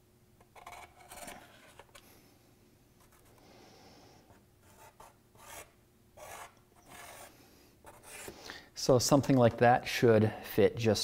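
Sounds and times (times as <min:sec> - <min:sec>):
marker scratching on cardboard: 0:04.6 - 0:08.3.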